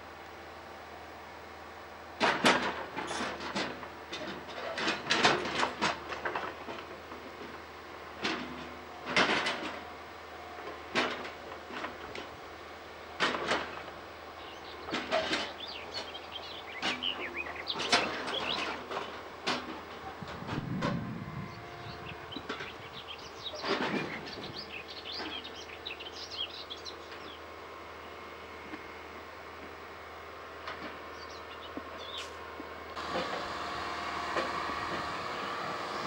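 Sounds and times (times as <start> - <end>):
wheels clanking on rails: 2.2 - 10.0, 10.6 - 12.5, 13.2 - 27.4, 30.6 - 36.0.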